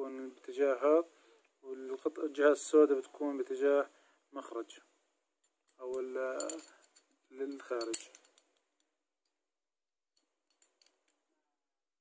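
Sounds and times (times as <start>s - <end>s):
man speaking: 0.0s - 4.9s, 5.8s - 6.7s, 7.3s - 8.1s
metal pistol parts clicking: 5.7s - 8.9s.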